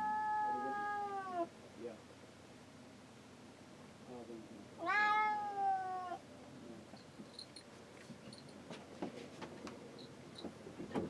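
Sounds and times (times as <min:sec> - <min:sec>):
cat meowing: 0:00.0 - 0:01.5, 0:04.8 - 0:06.2
faint knocks and clicks: 0:06.9 - 0:11.0.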